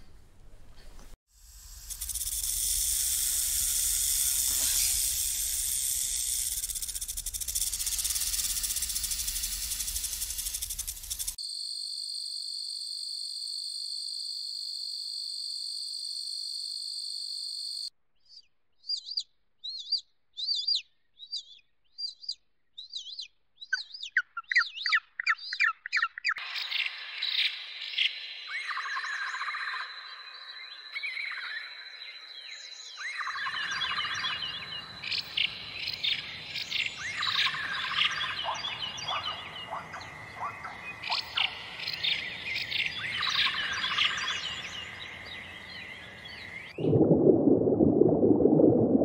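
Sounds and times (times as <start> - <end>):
rattlesnake rattle buzzing: 1.3 - 11.4, 33.7 - 45.2
high-pitched insect-like drone: 1.4 - 11.4
quick chirps: 1.4 - 11.4
bird singing: 18.2 - 46.9.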